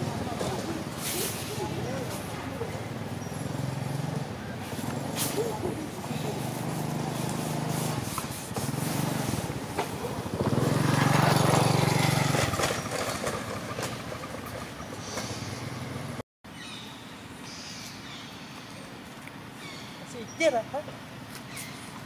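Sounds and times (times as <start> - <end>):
engine humming: 0.0 - 16.2.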